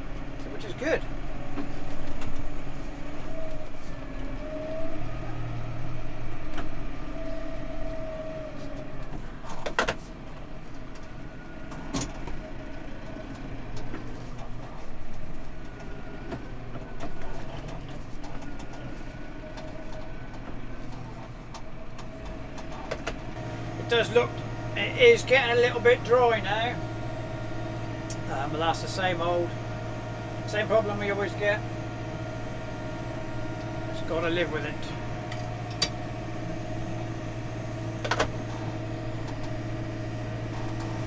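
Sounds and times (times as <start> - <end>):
tractor engine revving: 15.3 - 41.0.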